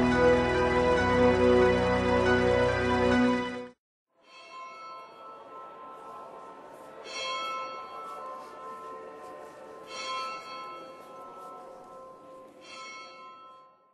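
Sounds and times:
bell tolling: 4.3 - 13.9.

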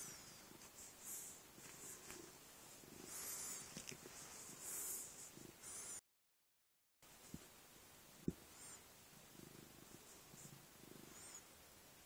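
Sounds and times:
cat purring faintly: 0.0 - 6.0, 8.2 - 11.7.

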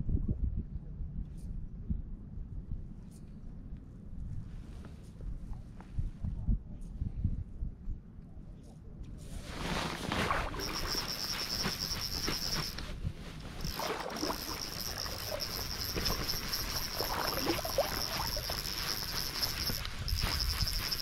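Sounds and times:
water sloshing and splashing: 9.4 - 21.0
crickets trilling: 9.6 - 21.0.

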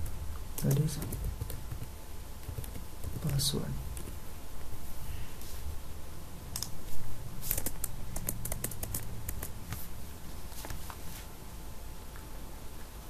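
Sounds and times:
keyboard typing: 0.0 - 4.2, 7.4 - 9.8.

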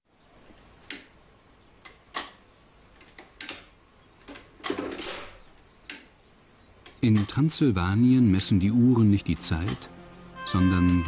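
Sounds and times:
clock mechanism ticking: 6.8 - 7.6, 9.3 - 9.9.

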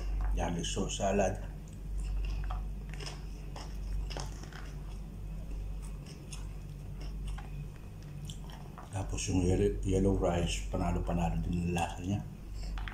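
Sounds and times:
steady low hum: 0.0 - 12.9
chewing: 1.5 - 9.1.

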